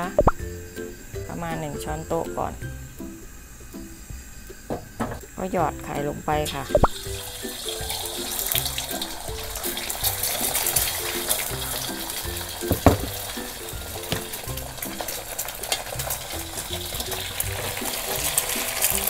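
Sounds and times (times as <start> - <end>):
egg sizzling in a wok: 0.0 - 19.0
spatula in a pan: 6.9 - 19.0
sharp knock: 12.6 - 13.2.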